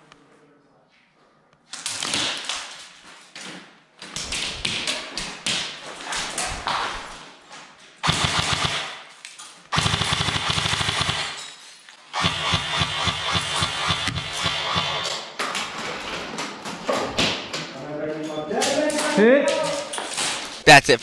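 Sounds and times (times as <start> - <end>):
airsoft rifles firing: 8.0 - 9.1, 9.7 - 11.4, 12.1 - 15.3.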